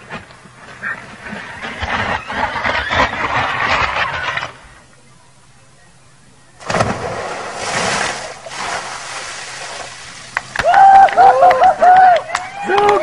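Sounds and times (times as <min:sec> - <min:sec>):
splash into paddling pool: 0:06.6 - 0:10.6
people whooping and shouting: 0:10.5 - 0:13.0.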